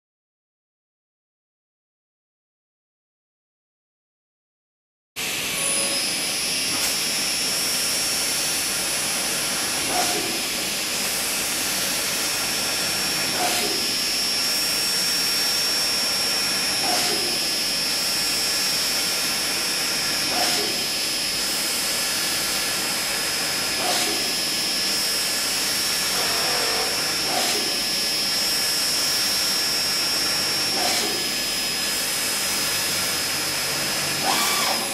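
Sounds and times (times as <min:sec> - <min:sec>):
drill spindle whine: 0:05.2 - 0:34.9.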